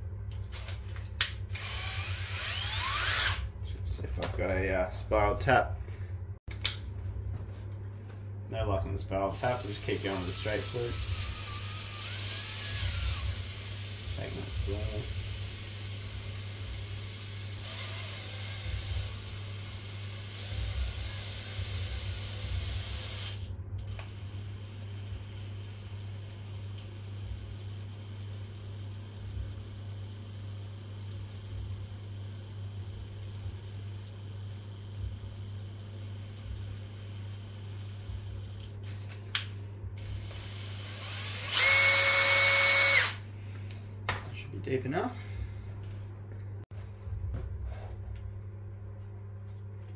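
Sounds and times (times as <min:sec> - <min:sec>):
drill click: 0:00.4 - 0:03.4, 0:09.4 - 0:14.4, 0:40.2 - 0:43.2
drill whirring: 0:00.5 - 0:00.9, 0:01.5 - 0:03.5, 0:09.3 - 0:26.1, 0:40.0 - 0:43.2.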